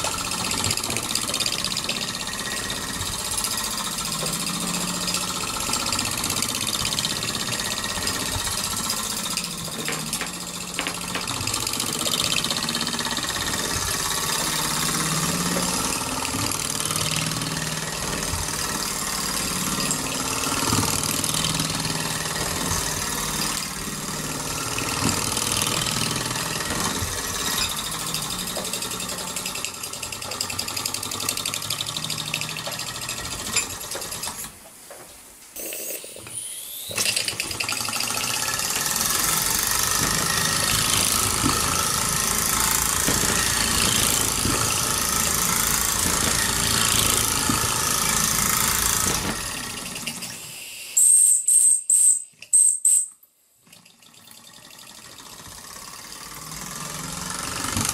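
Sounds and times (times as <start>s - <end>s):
model steam engine beating: 0.0s - 34.4s.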